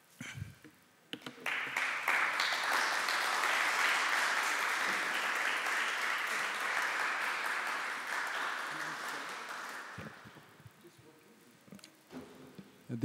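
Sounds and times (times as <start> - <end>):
audience applauding: 1.4 - 10.4.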